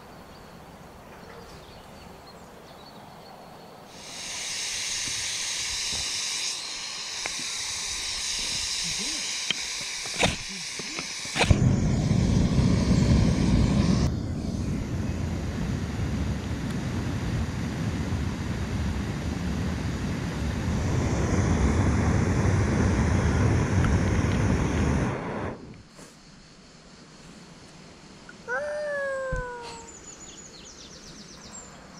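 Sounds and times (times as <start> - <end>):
gas stove burning roar: 4.0 - 25.6.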